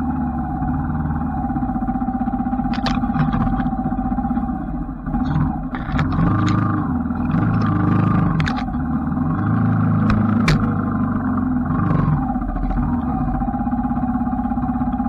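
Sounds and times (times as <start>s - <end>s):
motorcycle engine revving: 0.0s - 15.0s
sharp clicks and knocks: 2.6s - 4.0s, 5.2s - 8.9s, 9.6s - 11.0s, 11.8s - 13.4s.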